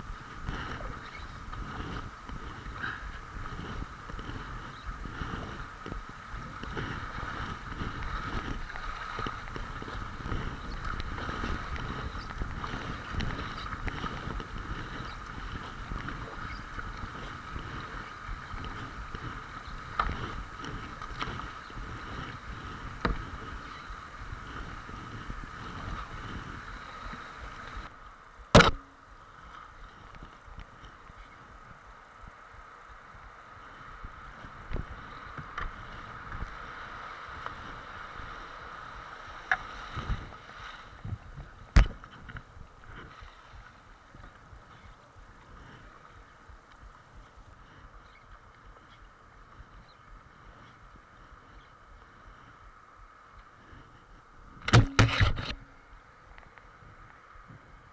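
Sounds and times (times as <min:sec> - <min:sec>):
water rushing past kayak hull: 0:00.0 - 0:30.0
sharp knocks on kayak: 0:28.6 - 0:28.9, 0:54.6 - 0:55.5.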